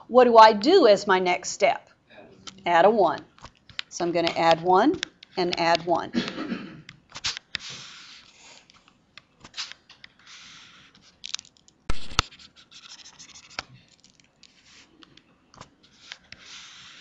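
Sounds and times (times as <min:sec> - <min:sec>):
stylus scratching on tablet screen: 0:04.1 - 0:06.0, 0:07.6 - 0:08.7, 0:09.4 - 0:11.1, 0:11.9 - 0:13.6, 0:14.5 - 0:15.2, 0:15.9 - 0:17.0.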